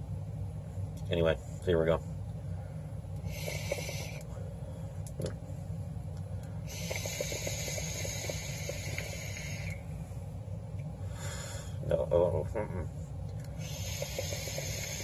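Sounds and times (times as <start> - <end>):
e-cigarette puff: 3.2 - 4.4, 6.7 - 9.8, 13.6 - 15.0
hiss of air through coil: 3.2 - 4.4, 6.6 - 10.2, 13.6 - 15.0.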